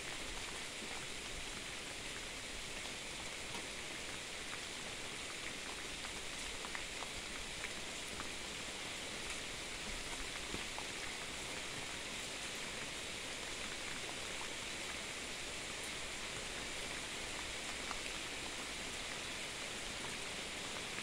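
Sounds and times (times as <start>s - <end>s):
raindrops ticking nearby: 13.4s - 21.0s.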